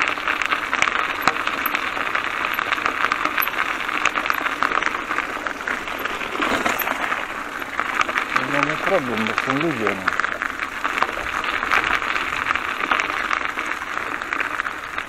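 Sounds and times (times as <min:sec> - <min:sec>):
bicycle clicking and rattling: 0:01.0 - 0:08.3
tyres rolling over wet leaves: 0:05.0 - 0:15.0.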